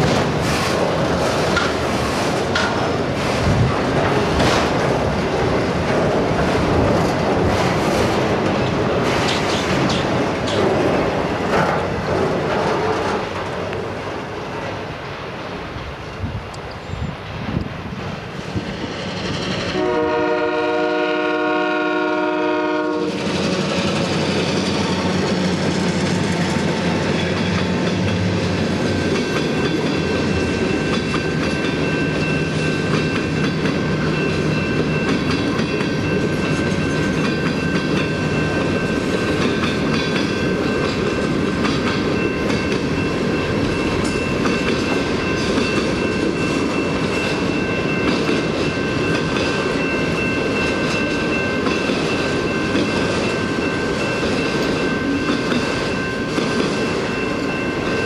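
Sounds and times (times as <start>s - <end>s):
freight train horn: 19.7s - 23.3s.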